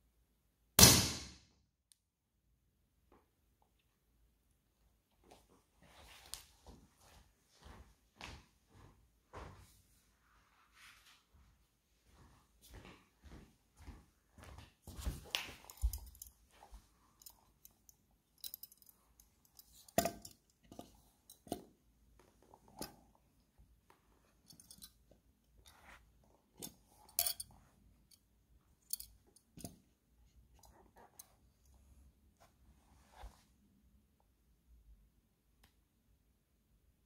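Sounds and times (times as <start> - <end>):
light metallic clinks: 15.3 - 21.6, 24.4 - 25.8, 26.6 - 29.8.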